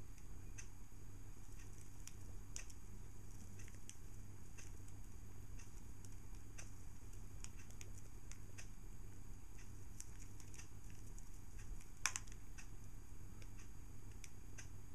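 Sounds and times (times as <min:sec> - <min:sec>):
low steady hum: 0:00.0 - 0:14.9
budgies clicking and tapping: 0:01.5 - 0:08.8.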